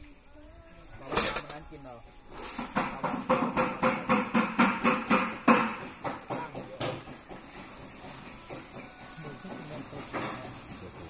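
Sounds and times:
rapid sharp knocks: 2.8s - 8.8s.

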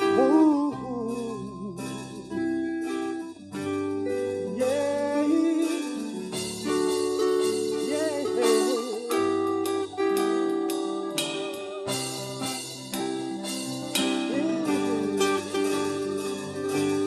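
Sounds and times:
keyboard sustained chords: 0.0s - 17.0s
person singing wavering line: 4.4s - 17.0s.

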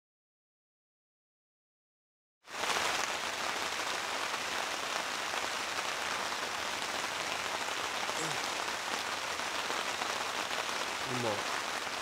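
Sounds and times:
heavy rain on a tent: 2.4s - 12.0s.

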